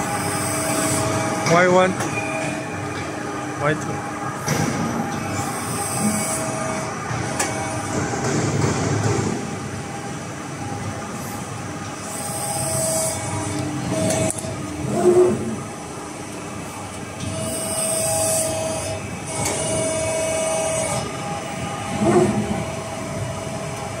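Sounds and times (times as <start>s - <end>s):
machine hum: 0.0s - 24.0s
machine whine: 0.0s - 24.0s.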